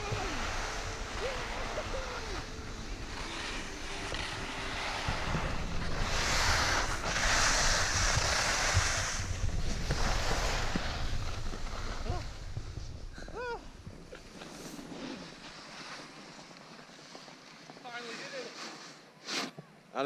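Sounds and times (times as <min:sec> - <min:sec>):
wind buffeting microphone: 0:00.0 - 0:14.1
sliding on packed snow: 0:00.0 - 0:19.5.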